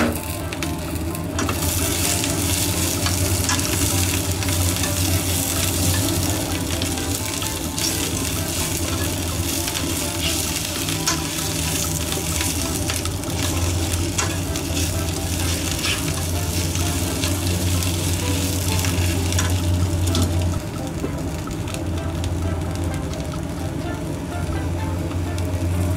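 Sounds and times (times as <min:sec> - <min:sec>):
low steady hum: 0:00.0 - 0:25.9
peppers sizzling in frying pan: 0:00.0 - 0:25.9
chopsticks clicking against pan: 0:01.4 - 0:20.6.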